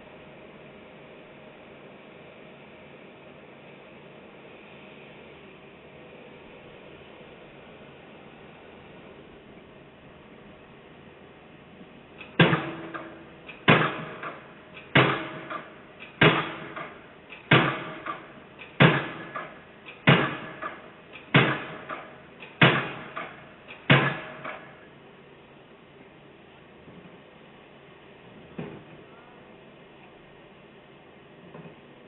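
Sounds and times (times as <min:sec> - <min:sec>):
piling hammer blows: 0:12.2 - 0:24.8.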